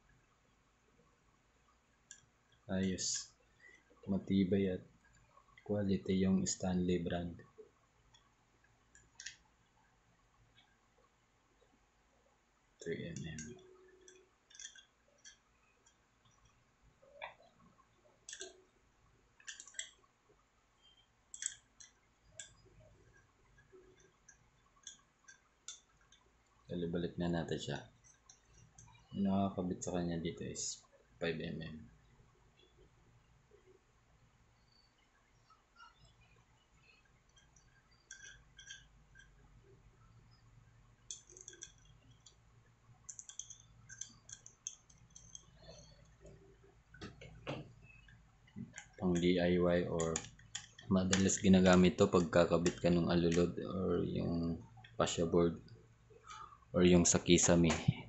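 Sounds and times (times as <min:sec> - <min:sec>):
hand riveter clicks and ticks: 0:08.9 - 0:09.5, 0:13.2 - 0:16.6, 0:18.3 - 0:18.7, 0:19.4 - 0:20.0, 0:20.9 - 0:26.3, 0:35.8 - 0:39.4, 0:41.0 - 0:49.3, 0:49.9 - 0:53.5.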